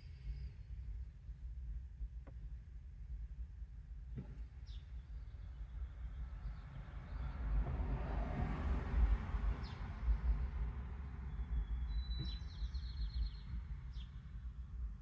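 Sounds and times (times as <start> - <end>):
low street rumble: 0.0 - 15.0
car passing: 6.2 - 14.1
bird chirping trill: 11.3 - 14.2.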